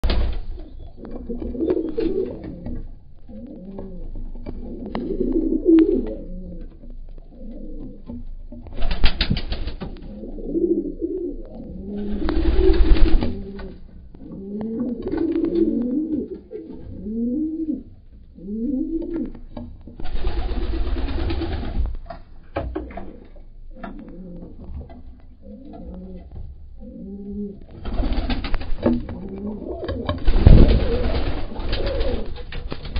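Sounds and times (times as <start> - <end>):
wing flapping: 0.0 - 3.9, 8.7 - 10.1, 11.8 - 14.3, 20.0 - 23.2, 27.7 - 32.9
pigeons cooing: 0.0 - 32.9.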